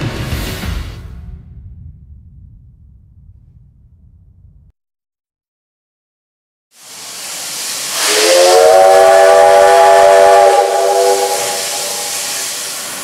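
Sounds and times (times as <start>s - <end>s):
steam hissing: 6.8s - 13.0s
steam whistle blast: 6.9s - 13.0s.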